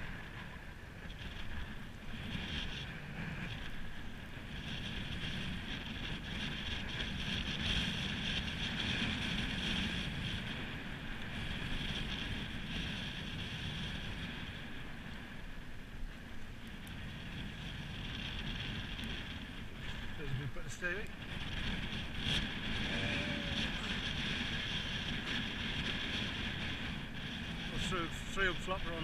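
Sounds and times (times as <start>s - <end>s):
wind across microphone: 0.0s - 29.0s
sea washing against harbour wall: 17.0s - 29.0s.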